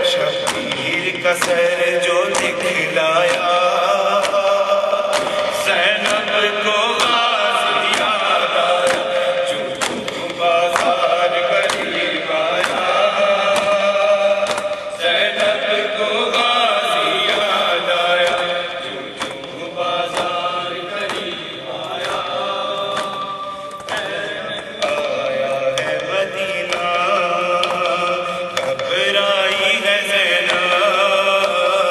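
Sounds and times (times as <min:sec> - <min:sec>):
man chanting a lament: 0:00.0 - 0:31.9
sharp beats: 0:00.0 - 0:31.9.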